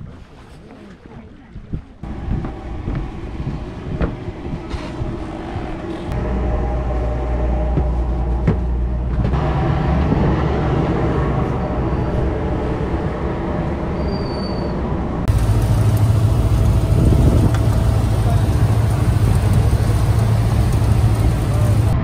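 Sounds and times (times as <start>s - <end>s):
ferry engine drone: 2.0s - 14.0s, 14.7s - 22.0s
general background noise: 15.3s - 22.0s.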